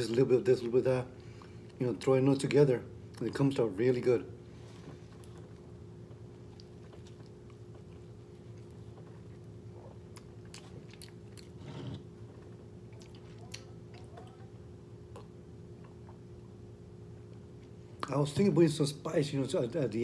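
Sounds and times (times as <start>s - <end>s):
man chewing: 4.8s - 16.6s.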